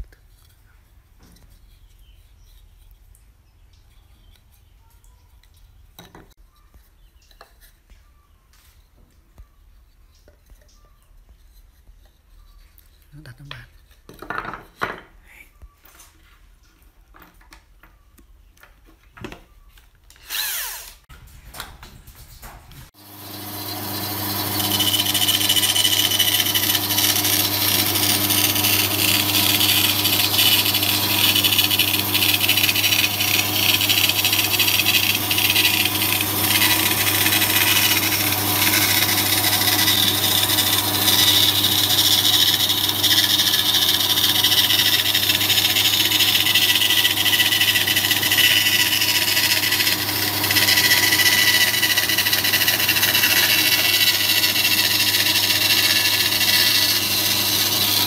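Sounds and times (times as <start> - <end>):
band saw motor hum: 20.2 - 20.9, 23.0 - 58.0
saw blade cutting wood: 20.2 - 21.1, 23.0 - 58.0.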